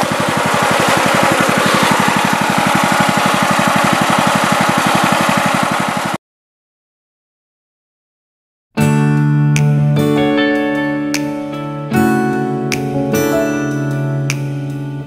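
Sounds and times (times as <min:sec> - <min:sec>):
small gas engine running: 0:00.0 - 0:06.2.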